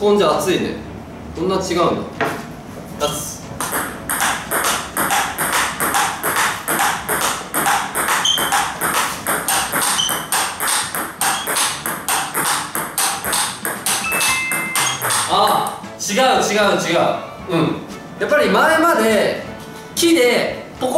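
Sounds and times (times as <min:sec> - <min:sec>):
table tennis ball clicking: 0:03.6 - 0:15.8.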